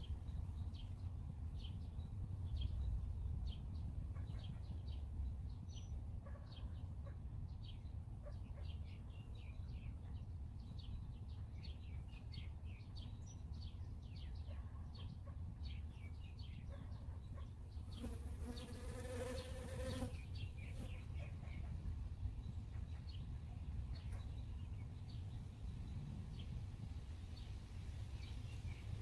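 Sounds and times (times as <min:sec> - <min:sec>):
outdoor background: 0:00.0 - 0:29.0
honeybee buzzing: 0:18.0 - 0:20.2.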